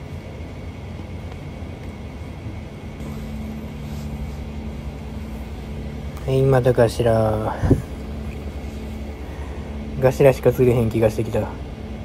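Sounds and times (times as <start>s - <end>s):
steady low drone: 0.0s - 12.0s
wind rumble on microphone: 7.4s - 10.0s.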